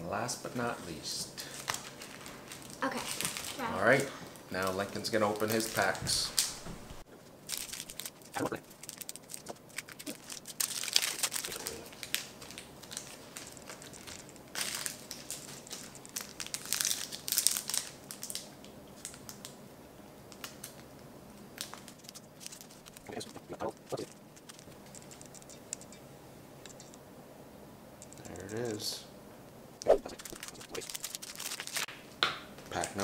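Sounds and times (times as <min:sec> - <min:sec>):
plastic wrapper crinkling and tearing: 0:01.5 - 0:04.1, 0:04.9 - 0:06.6, 0:07.4 - 0:19.6, 0:20.3 - 0:21.0, 0:21.6 - 0:26.0, 0:30.0 - 0:31.9
cards being handled: 0:21.6 - 0:26.0, 0:28.0 - 0:28.9, 0:29.8 - 0:32.0.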